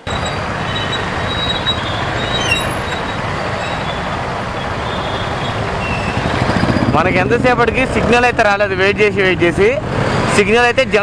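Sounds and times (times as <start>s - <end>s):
road and wind noise: 0.0s - 11.0s
brief high squeak: 0.1s - 4.1s
motorcycle engine running: 3.4s - 8.8s.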